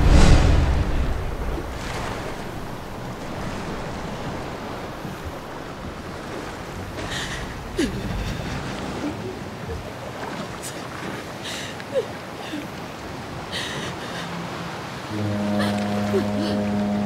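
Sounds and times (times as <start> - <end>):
steady wind: 0.0 - 17.0
waves washing against boat hull: 0.0 - 17.0.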